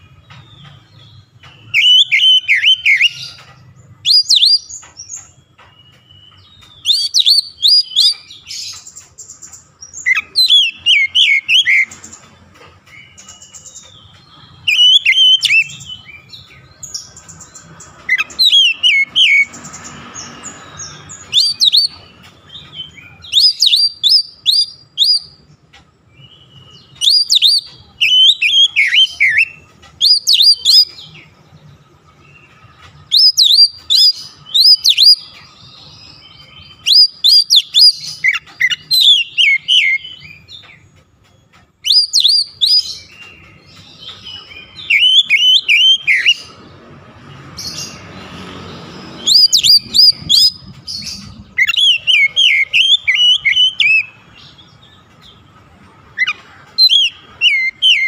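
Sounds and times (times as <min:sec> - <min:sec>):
bird singing whistled phrases: 0:01.6 - 0:03.4, 0:04.0 - 0:04.7, 0:05.9 - 0:08.9, 0:10.0 - 0:12.0, 0:14.6 - 0:16.3, 0:18.1 - 0:19.5, 0:20.9 - 0:22.0, 0:22.6 - 0:25.4, 0:26.2 - 0:31.2, 0:33.1 - 0:40.6, 0:41.8 - 0:43.3, 0:44.0 - 0:46.4, 0:49.2 - 0:54.2, 0:56.2 - 0:58.0.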